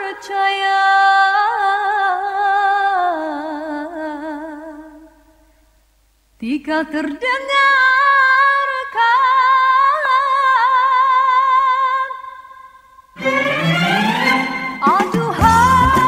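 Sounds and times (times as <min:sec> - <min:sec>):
woman singing a slow melody: 0:00.0 - 0:05.4, 0:06.4 - 0:12.8, 0:14.8 - 0:16.0.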